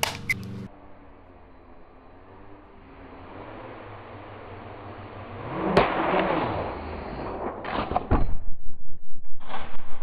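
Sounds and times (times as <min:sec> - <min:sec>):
sharp crack: 0:00.0 - 0:00.7, 0:05.7 - 0:06.4.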